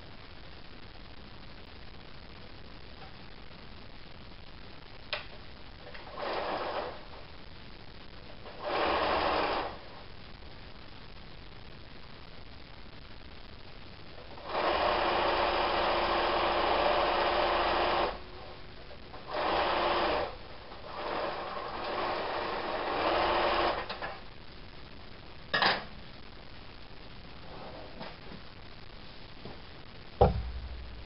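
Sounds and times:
sewing machine stitching fabric: 6.0s - 7.0s, 8.4s - 9.8s, 14.4s - 18.2s, 19.2s - 24.1s.

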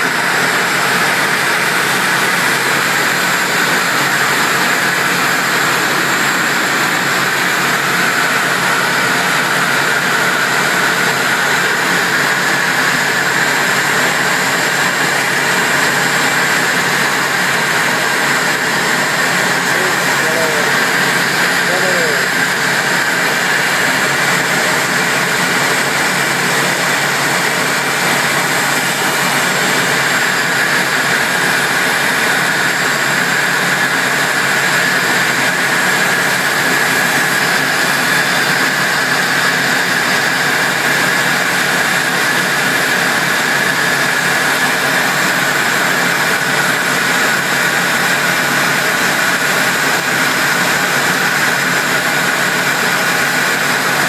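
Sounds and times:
jet cockpit engine rush: 0.0s - 54.0s
airflow around canopy: 3.4s - 31.2s.

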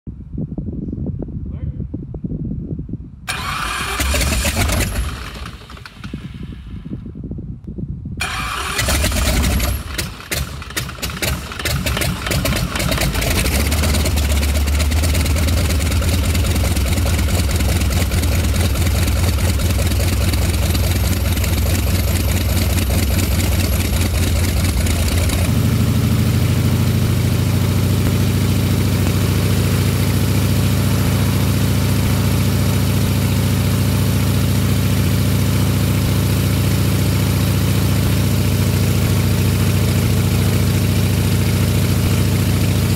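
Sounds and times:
radial aircraft engine idling: 8.2s - 33.2s.

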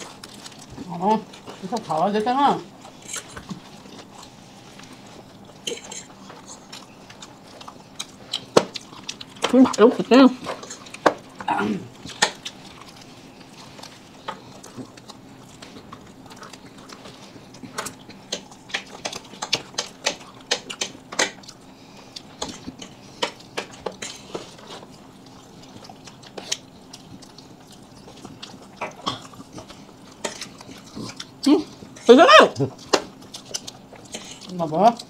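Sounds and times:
chewing and mouth smacks: 0.0s - 2.0s, 2.7s - 35.0s
faint steady hum: 0.0s - 35.0s.

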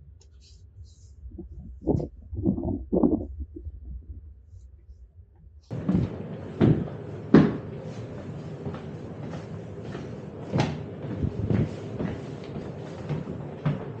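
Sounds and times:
footsteps walking: 5.7s - 14.0s
tram equipment hum: 5.7s - 14.0s.

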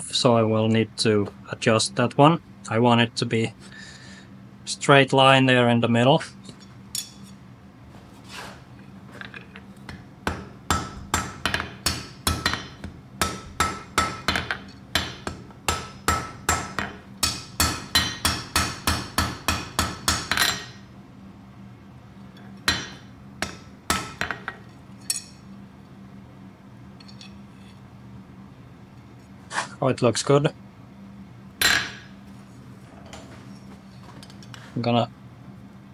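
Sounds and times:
hammer striking iron: 9.9s - 20.8s, 22.7s - 25.3s, 31.6s - 32.1s.

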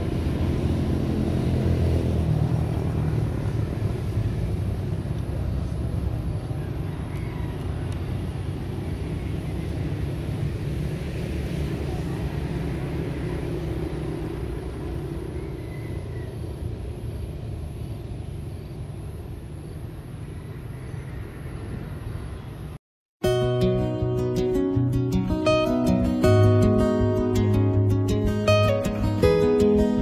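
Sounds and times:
road traffic rumble: 0.0s - 30.0s.

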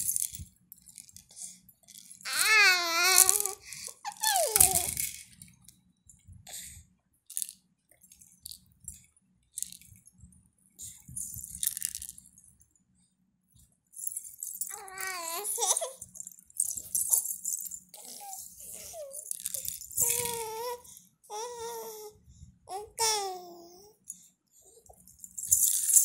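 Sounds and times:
plastic toy rattle shaking: 0.0s - 5.7s, 7.3s - 9.0s, 9.6s - 10.0s, 11.0s - 12.4s, 14.0s - 20.7s, 24.9s - 26.0s
baby squealing: 2.3s - 5.0s, 14.7s - 16.0s, 18.0s - 22.1s.

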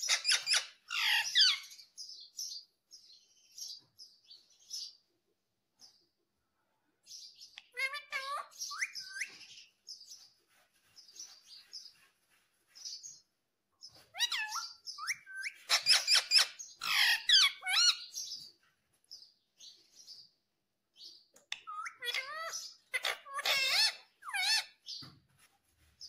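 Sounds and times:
parakeet chirping and squawking: 0.0s - 2.0s, 7.6s - 10.3s, 13.8s - 18.4s, 21.6s - 25.1s.

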